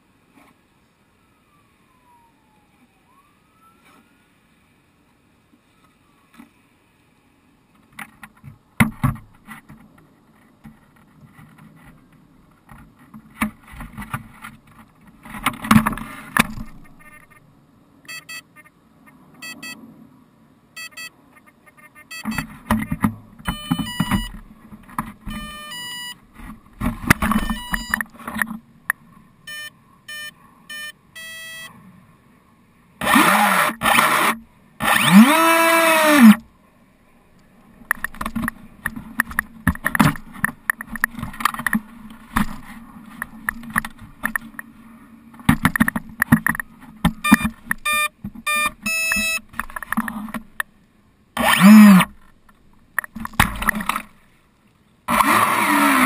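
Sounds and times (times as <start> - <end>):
short electronic beeps: 18.1 - 18.7, 19.4 - 19.8, 20.8 - 22.5, 23.4 - 24.4, 25.3 - 26.2, 27.3 - 28.1, 29.4 - 31.7, 47.2 - 49.5
small motor revving: 33.0 - 36.4, 51.4 - 52.1, 55.1 - 56.0.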